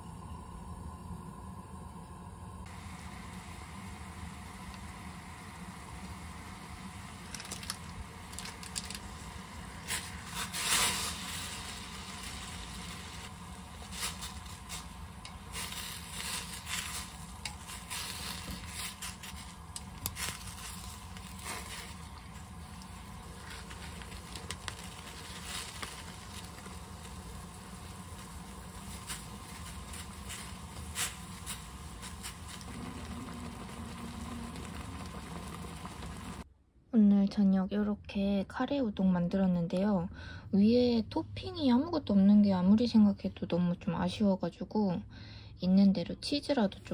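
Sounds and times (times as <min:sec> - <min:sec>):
water bubbling at the boil: 0:00.0 - 0:36.4
steady low hum: 0:00.0 - 0:38.2
chopsticks tapping and scraping: 0:16.6 - 0:21.7.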